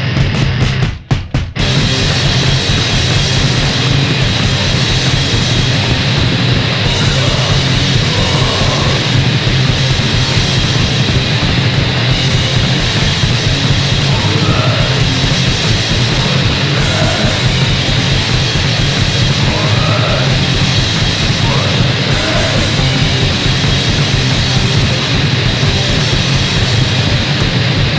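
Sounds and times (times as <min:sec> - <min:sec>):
loud distorted punk band: 0:00.0 - 0:27.9.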